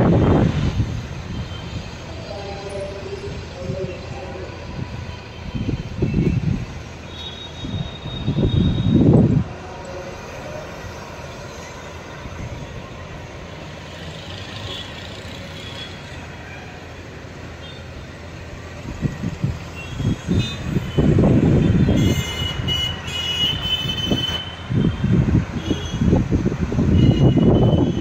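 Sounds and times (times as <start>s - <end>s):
wind gusts buffeting microphone: 0.0s - 2.3s, 2.9s - 7.0s, 7.6s - 11.2s, 18.6s - 22.7s, 23.5s - 28.0s.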